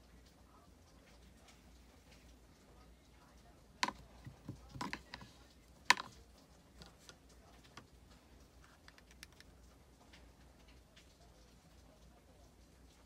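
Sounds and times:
faint clicks and taps of bottle: 0:03.8 - 0:10.8.

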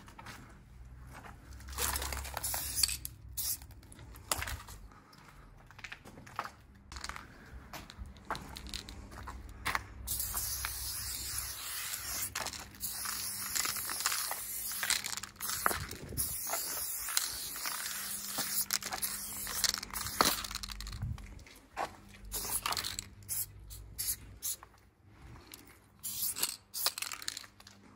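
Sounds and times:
spray paint can hissing: 0:01.9 - 0:03.8, 0:10.1 - 0:21.0, 0:22.3 - 0:24.6, 0:26.0 - 0:27.4.

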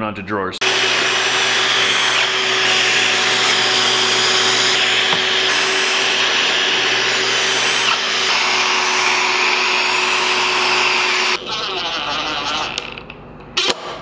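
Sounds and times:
shop vacuum running: 0:00.6 - 0:11.4.

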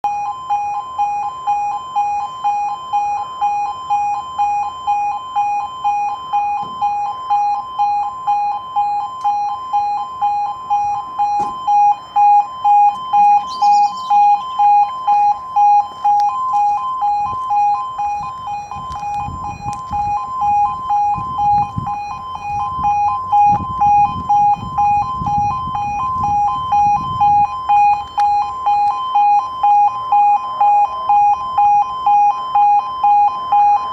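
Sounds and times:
pulsing two-tone crossing alarm: 0:00.0 - 0:33.9
low rumbling noise: 0:14.3 - 0:31.6.

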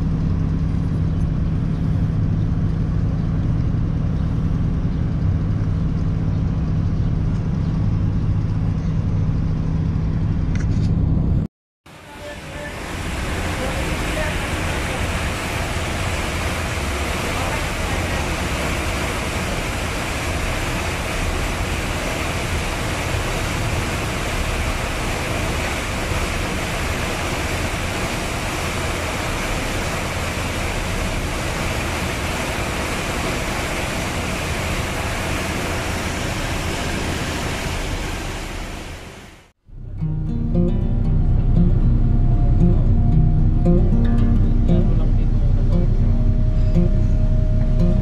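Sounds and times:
ship engines droning: 0:00.0 - 0:48.0
wind: 0:00.0 - 0:48.0
churning wake water: 0:11.9 - 0:48.0.

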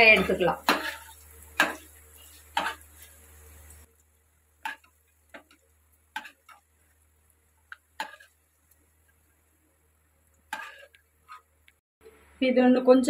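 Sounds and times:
metal spoon tapping frying pan: 0:00.0 - 0:02.9, 0:04.6 - 0:06.7, 0:07.7 - 0:08.4, 0:10.4 - 0:11.0.

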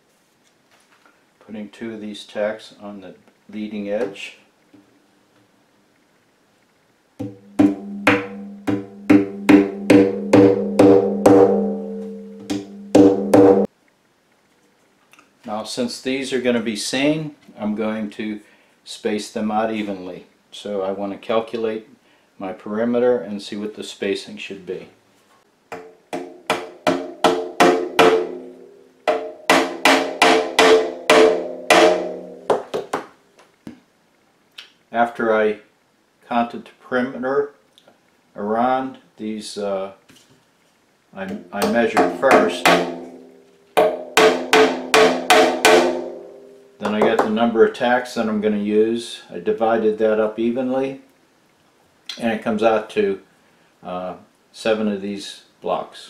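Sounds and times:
hammer tapping tacks: 0:07.2 - 0:11.4, 0:12.4 - 0:13.7, 0:25.7 - 0:28.4, 0:29.0 - 0:33.1, 0:41.3 - 0:43.2, 0:46.8 - 0:47.4
drum ringing low tone: 0:07.3 - 0:13.7.

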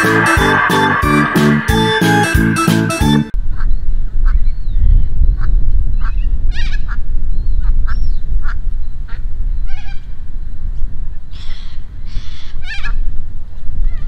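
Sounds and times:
steady low rumble: 0:00.0 - 0:09.3.

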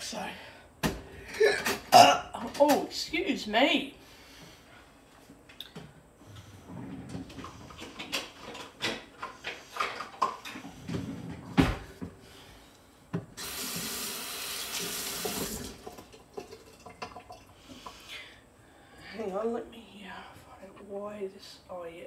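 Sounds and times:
kitchen tap running into sink: 0:13.4 - 0:17.5.

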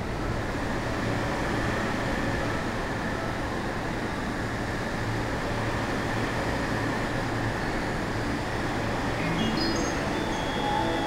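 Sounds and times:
train equipment humming: 0:01.7 - 0:11.0.

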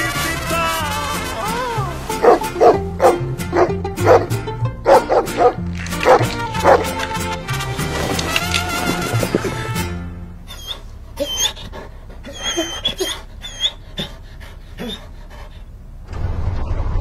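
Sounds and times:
background music: 0:00.0 - 0:10.5
dog barking: 0:02.2 - 0:04.3, 0:04.9 - 0:07.0.

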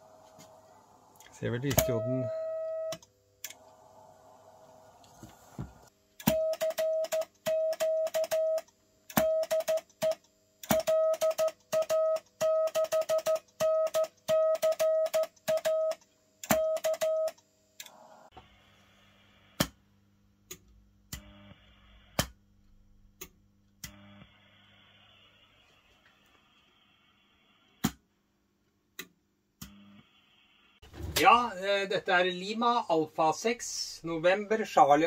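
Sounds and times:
low hum: 0:00.0 - 0:05.9
morse code tone: 0:01.5 - 0:03.0.

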